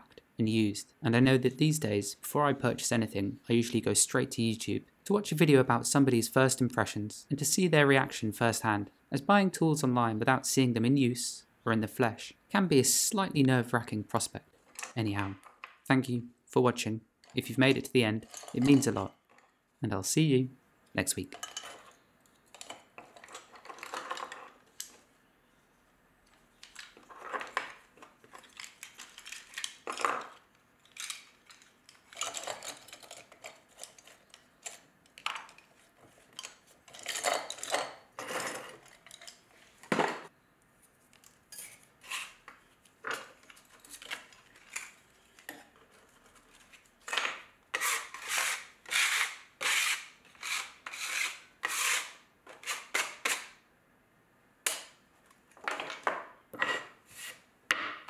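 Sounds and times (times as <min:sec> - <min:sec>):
metal tools clinking: 0:18.2 - 0:19.5, 0:36.3 - 0:39.5
scraping and wiping on a workbench: 0:56.6 - 0:57.5.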